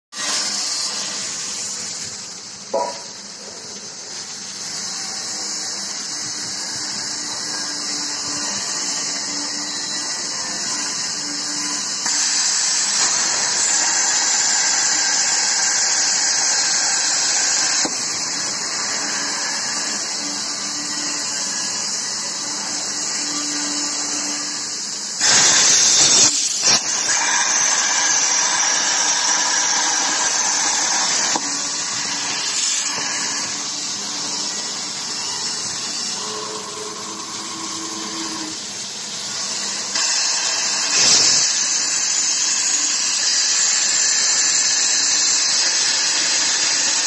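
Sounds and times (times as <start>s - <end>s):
plasma torch hissing: 0.1s - 47.0s
plasma torch blast: 24.6s - 34.0s.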